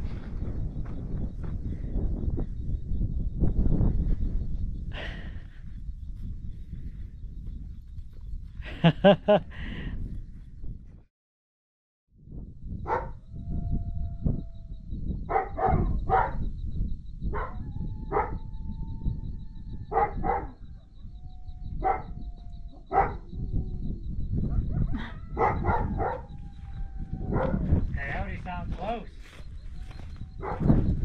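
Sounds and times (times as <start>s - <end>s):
wind noise on microphone: 0.0s - 11.1s, 12.1s - 31.0s
dog barking: 12.8s - 13.2s, 15.3s - 16.4s, 17.3s - 18.4s, 19.9s - 20.9s, 21.8s - 22.1s, 22.8s - 23.2s, 24.5s - 26.4s, 27.3s - 27.6s, 30.4s - 30.8s.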